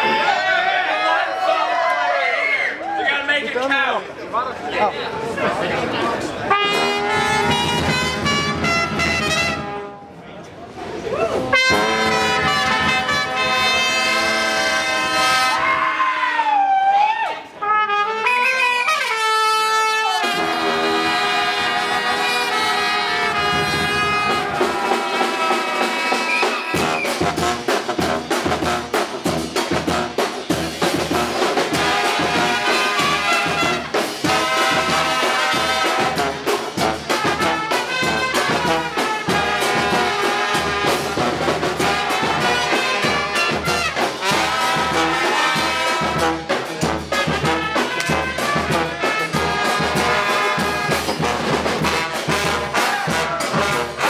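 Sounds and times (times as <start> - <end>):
brass band playing: 0.0 - 1.4, 6.4 - 10.2, 11.4 - 16.2, 17.6 - 54.0
drums steady beat: 6.5 - 9.8, 11.5 - 15.1, 20.2 - 54.0
horns sliding between notes: 6.5 - 10.0, 11.5 - 15.7, 18.2 - 27.6.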